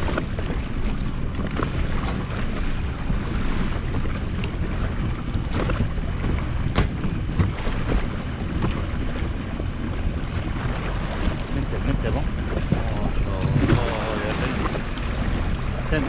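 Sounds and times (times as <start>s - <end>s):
low rumble: 0.0s - 16.0s
water against hull: 0.0s - 16.0s
wind buffeting microphone: 0.0s - 16.0s
sharp knocks: 6.6s - 7.6s.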